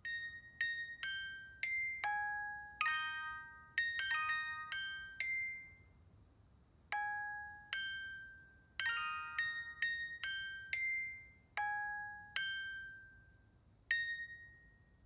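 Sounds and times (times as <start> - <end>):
slow bell-like melody: 0.0 - 6.1, 6.9 - 15.0.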